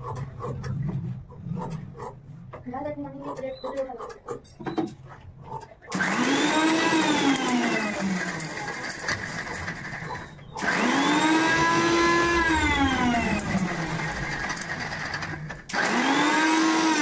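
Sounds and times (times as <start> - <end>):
mixer grinder motor whining: 5.9 - 17.0.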